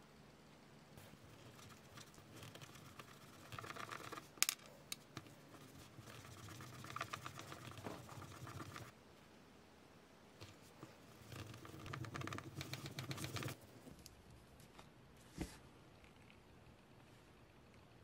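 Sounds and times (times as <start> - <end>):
scraping and rubbing with clicks: 10.4 - 17.9.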